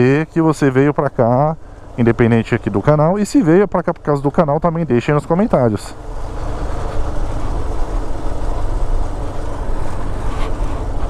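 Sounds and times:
wind: 0.0s - 11.0s
motorcycle engine running: 6.0s - 11.0s.

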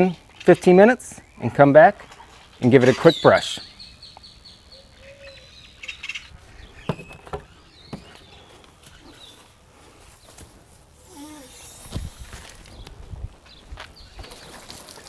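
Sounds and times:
faint bird chirps: 1.2s - 9.5s.

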